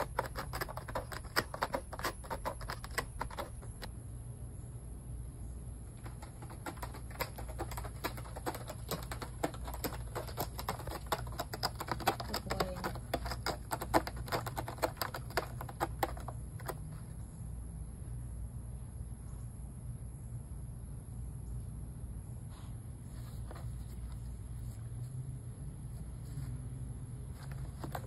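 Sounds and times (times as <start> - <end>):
cat claws scratching cardboard: 0.0 - 3.9, 6.0 - 17.2, 27.2 - 28.0.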